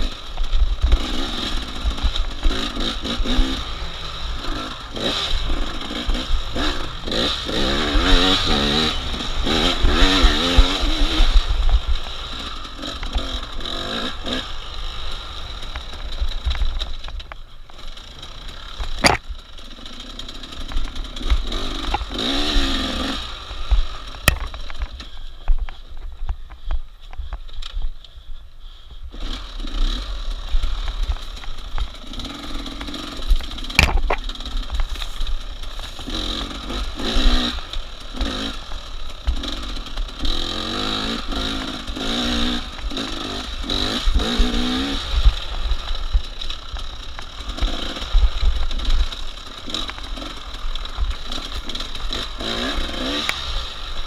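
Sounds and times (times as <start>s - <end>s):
sharp click: 18.9s - 19.4s.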